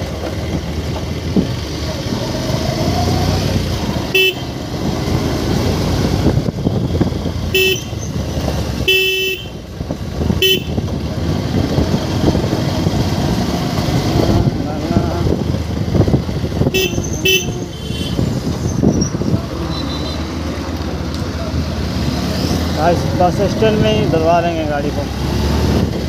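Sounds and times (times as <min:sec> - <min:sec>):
motorcycle engine running: 0:00.0 - 0:25.0
road noise: 0:00.0 - 0:26.0
motorcycle horn honking: 0:04.1 - 0:04.6, 0:07.5 - 0:08.1, 0:08.8 - 0:09.6, 0:10.4 - 0:10.9, 0:16.7 - 0:18.2
wind noise: 0:04.8 - 0:08.8, 0:09.5 - 0:20.0, 0:25.4 - 0:26.0.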